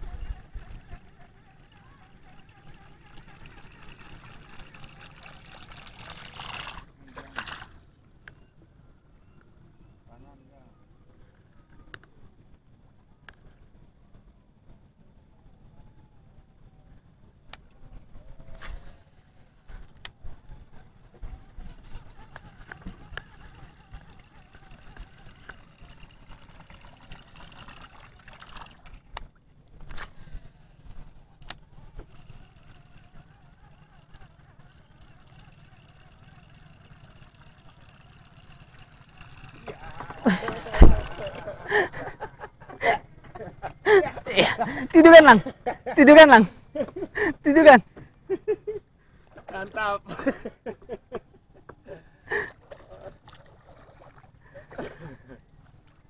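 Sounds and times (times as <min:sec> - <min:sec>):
water lapping against boat: 0:00.0 - 0:07.9, 0:20.8 - 0:29.1, 0:31.3 - 0:42.1, 0:52.5 - 0:56.0.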